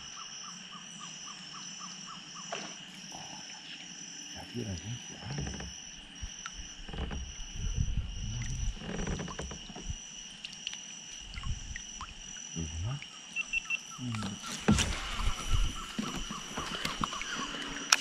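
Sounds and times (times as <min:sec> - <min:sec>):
insects buzzing and calling: 0:00.0 - 0:18.0
low rumbling: 0:05.2 - 0:10.0.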